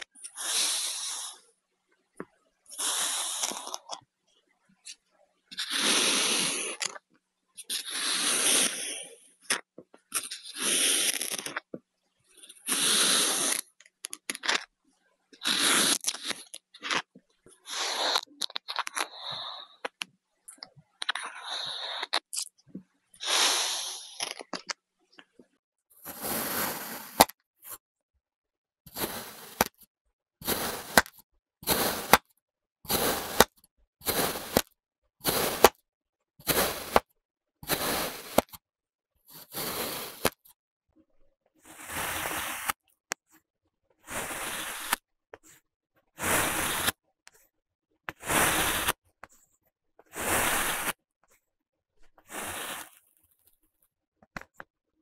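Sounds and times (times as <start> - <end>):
blade scraping through sand: 0.0 - 1.4, 2.7 - 3.9, 5.6 - 7.0, 7.6 - 9.0, 10.1 - 11.7, 12.4 - 14.6, 15.4 - 19.9, 23.2 - 24.5, 26.0 - 27.8, 28.9 - 29.8, 30.4 - 32.3, 32.9 - 35.8, 36.4 - 38.6, 39.3 - 40.4, 41.6 - 42.8, 44.0 - 45.0, 46.2 - 47.0, 48.1 - 49.0, 50.1 - 51.0, 52.2 - 53.0.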